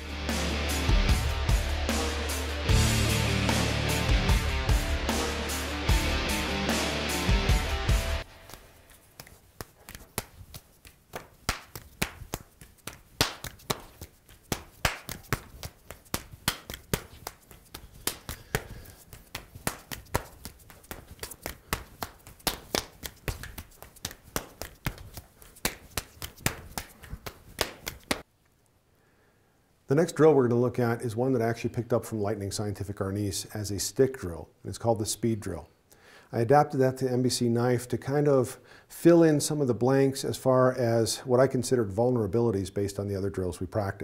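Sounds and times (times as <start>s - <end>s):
hands slapping and tapping: 8.2s - 28.3s.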